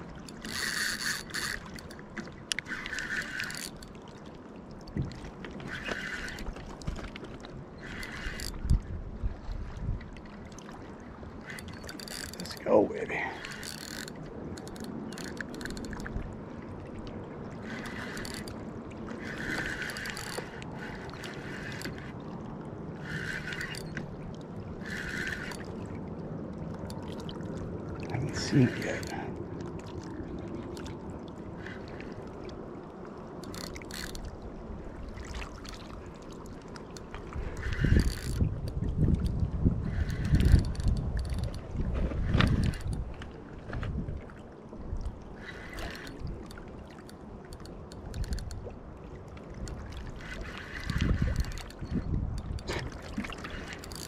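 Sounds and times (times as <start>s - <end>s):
waves lapping on rocky shore: 0.0s - 4.4s, 5.6s - 54.0s
faint clicks: 0.2s - 3.9s, 45.0s - 48.7s
fishing reel clicking and whirring: 0.2s - 4.0s, 5.6s - 6.9s, 7.7s - 8.9s, 11.4s - 16.2s, 17.6s - 22.2s, 22.9s - 25.8s, 26.8s - 29.3s, 31.5s - 32.4s, 33.4s - 34.3s, 35.6s - 43.1s, 45.3s - 48.6s, 49.6s - 52.7s, 53.4s - 54.0s.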